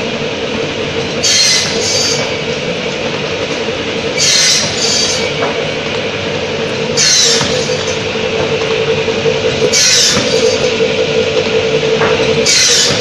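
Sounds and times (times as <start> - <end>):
cutting machine humming: 0.0 - 13.0
saw screeching through blocks: 1.2 - 2.3, 4.2 - 5.4, 7.0 - 8.0, 9.7 - 10.6, 12.4 - 13.0.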